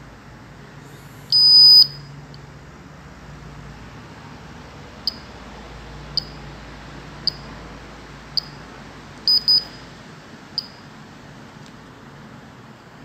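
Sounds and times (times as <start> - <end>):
gas detector beeping: 1.3 - 2.1, 9.3 - 9.9, 10.6 - 10.8.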